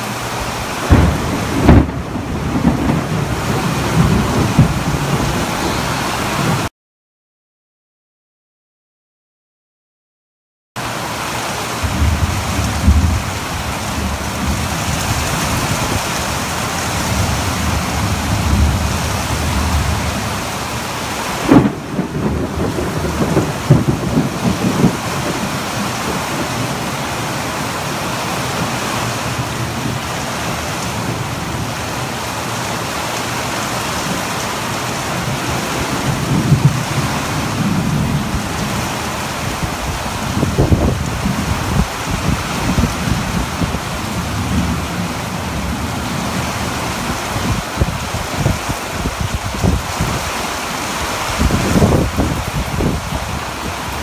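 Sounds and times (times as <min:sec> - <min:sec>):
heavy rain hissing: 0:00.0 - 0:06.7, 0:10.8 - 0:54.0
thunder crack: 0:00.8 - 0:06.7, 0:11.8 - 0:20.6, 0:21.4 - 0:26.7, 0:36.0 - 0:38.8
thunder rumbling: 0:00.8 - 0:06.7, 0:11.8 - 0:32.6, 0:33.8 - 0:54.0.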